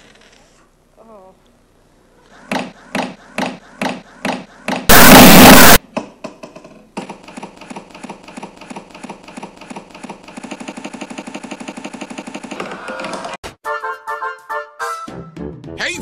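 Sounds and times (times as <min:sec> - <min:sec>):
blast of harsh noise: 0:04.9 - 0:05.8
fast looped stutter: 0:04.9 - 0:05.8.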